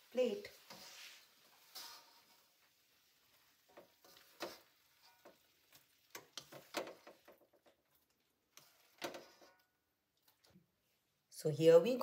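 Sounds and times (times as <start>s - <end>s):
serving spoon tapping and scraping pan: 0.6s - 2.7s, 3.4s - 7.8s, 8.5s - 9.7s.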